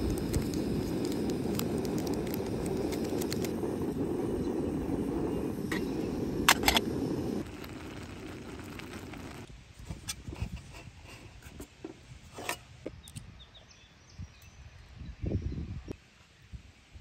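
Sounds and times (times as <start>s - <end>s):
gas stove burning rush: 0.0s - 11.1s.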